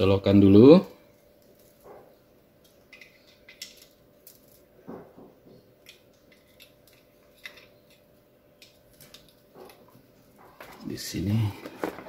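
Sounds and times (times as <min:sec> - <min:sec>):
faint steady hum: 0:00.0 - 0:12.0
cable clicks and rustles: 0:08.6 - 0:12.0.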